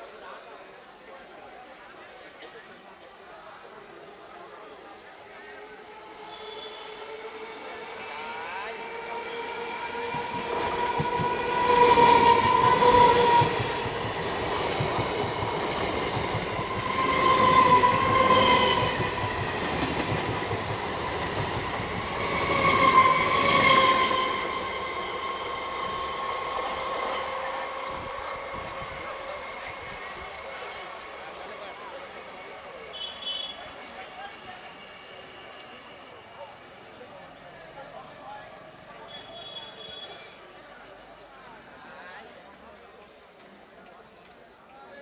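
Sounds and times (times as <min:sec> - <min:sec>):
train horn blasts: 0:06.2 - 0:07.6, 0:08.8 - 0:13.8, 0:32.9 - 0:33.7, 0:39.1 - 0:40.1
train wheels clattering on rails: 0:10.0 - 0:23.8.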